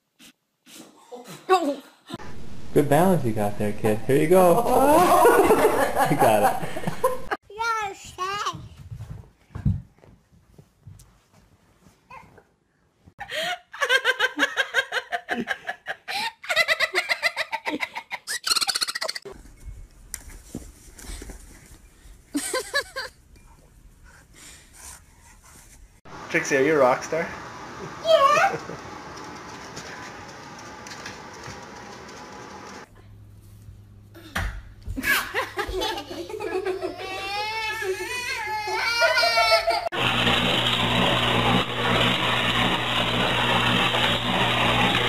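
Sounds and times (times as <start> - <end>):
high-pitched giggling laughter: 13.7 - 19.3, 22.4 - 23.2, 35.0 - 39.9.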